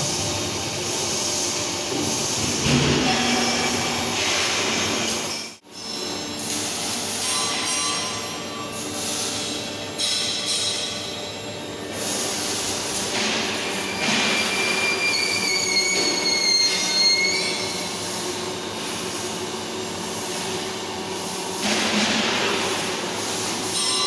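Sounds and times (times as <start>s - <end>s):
whistling metallic squeal: 13.8s - 17.9s.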